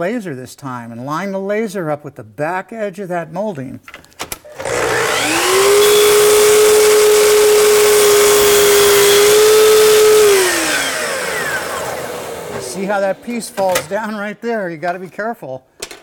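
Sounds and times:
miter saw whining: 0:04.5 - 0:13.9
saw blade cutting wood: 0:04.5 - 0:13.9.

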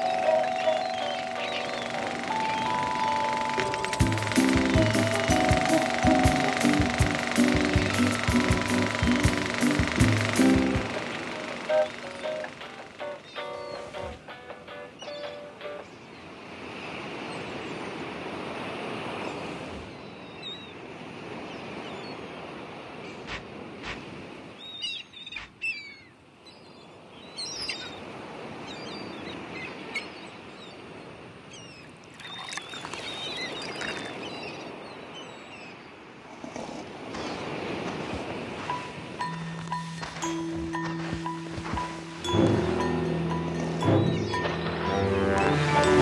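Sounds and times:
birds chirping: 0:00.0 - 0:16.3, 0:24.6 - 0:36.0, 0:36.8 - 0:46.0
surf washing on beach: 0:36.3 - 0:46.0.

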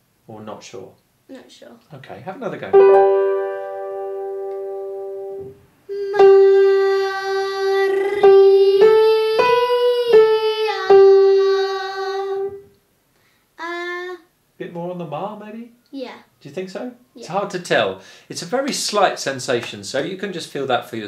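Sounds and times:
piano notes and chords: 0:02.7 - 0:05.6
girl singing vocal exercise: 0:05.9 - 0:12.7, 0:13.6 - 0:14.3.

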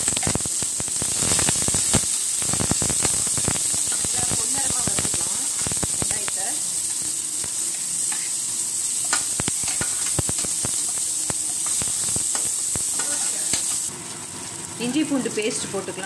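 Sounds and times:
onions sizzling in hot oil: 0:00.0 - 0:16.0
spoon scraping a pan: 0:07.7 - 0:08.4, 0:09.0 - 0:13.8.

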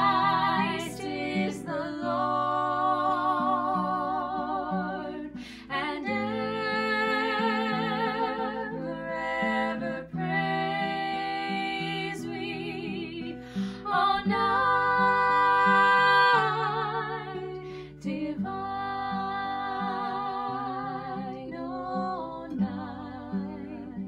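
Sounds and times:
acoustic guitar: 0:00.0 - 0:24.0
women singing together: 0:00.0 - 0:24.0
singers breathing: 0:05.4 - 0:05.7, 0:13.4 - 0:13.9, 0:17.6 - 0:18.0.

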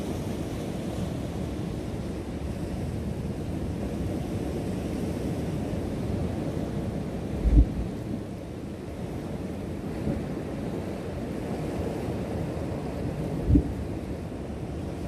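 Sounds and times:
ocean surf over rocks: 0:00.0 - 0:15.0
wind on microphone: 0:07.2 - 0:08.4, 0:13.2 - 0:14.2.

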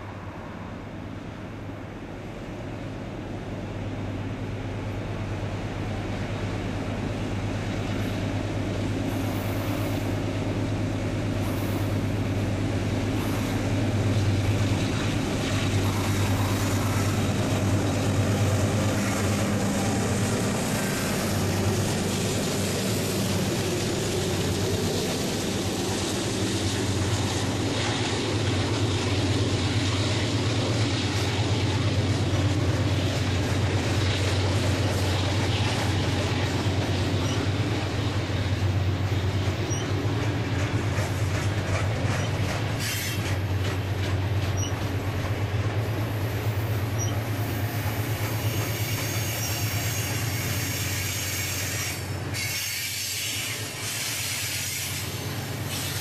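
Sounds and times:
diesel locomotive engine: 0:00.0 - 0:56.0
freight cars rolling: 0:10.7 - 0:52.4.

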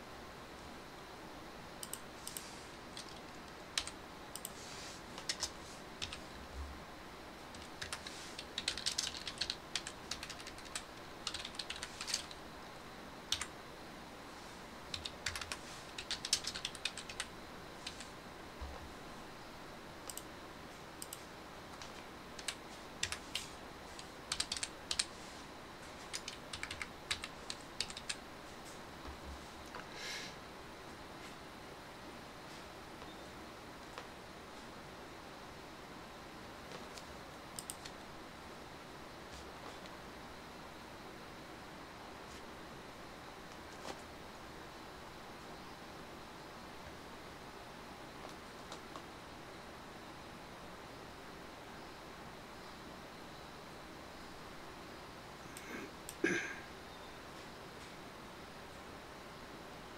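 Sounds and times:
keyboard typing clicks: 0:01.8 - 0:04.6, 0:05.2 - 0:06.2, 0:07.5 - 0:12.4, 0:13.3 - 0:13.5, 0:14.9 - 0:18.1, 0:20.0 - 0:20.3, 0:21.8 - 0:23.4, 0:24.3 - 0:25.1, 0:26.1 - 0:28.2, 0:36.9 - 0:38.0.

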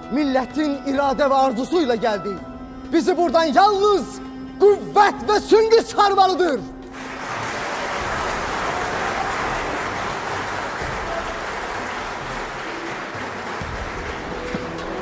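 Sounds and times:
crowd applauding: 0:06.9 - 0:15.0.

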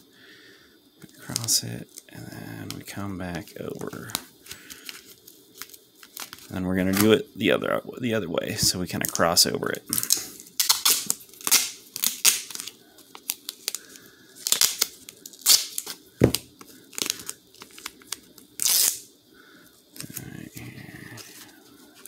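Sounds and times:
adhesive tape ripping off roll: 0:09.9 - 0:13.8, 0:14.4 - 0:16.4, 0:17.0 - 0:19.1.

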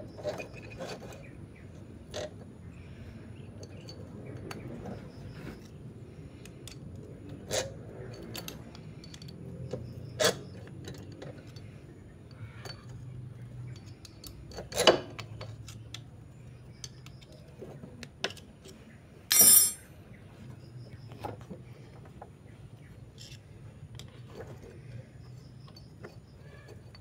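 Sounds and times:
metallic clicks of chain and tool: 0:03.5 - 0:16.1, 0:19.3 - 0:19.9
sharp metal clanks: 0:19.3 - 0:19.9.

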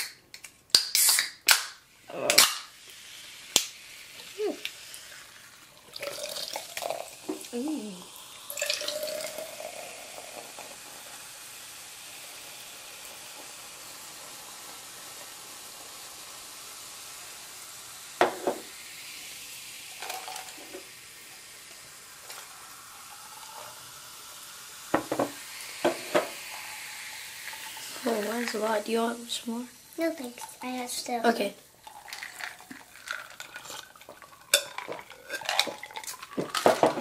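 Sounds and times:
soda fizzing: 0:00.8 - 0:37.0.

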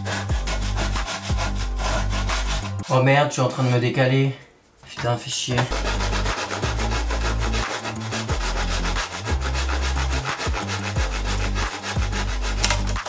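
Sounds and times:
handsaw cutting wood: 0:00.0 - 0:03.0, 0:05.7 - 0:13.0.

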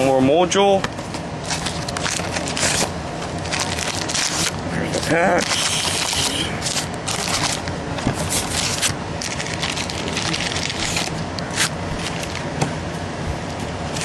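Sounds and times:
cards rustling: 0:01.4 - 0:12.5
wrappers crinkling and tearing: 0:01.4 - 0:12.5.

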